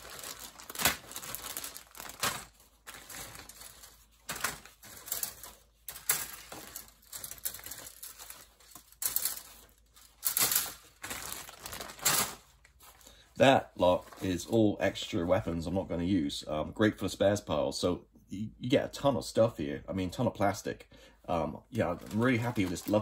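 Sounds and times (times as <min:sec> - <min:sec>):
plastic frames clattering: 0:00.0 - 0:12.5
plastic bags crinkling: 0:00.0 - 0:13.3, 0:21.7 - 0:23.0.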